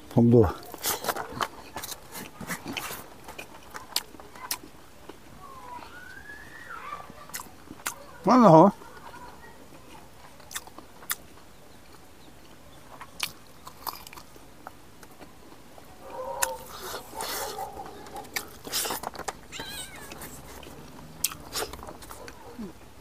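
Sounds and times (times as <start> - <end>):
wet chewing: 0.5 - 6.2, 7.1 - 22.8
cat meowing: 19.5 - 20.3.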